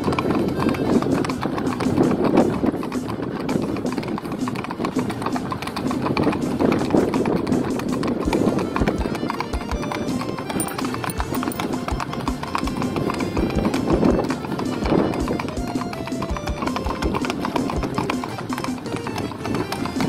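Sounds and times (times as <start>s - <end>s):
horse hooves on pavement: 0.0s - 20.0s
music playing: 8.0s - 20.0s.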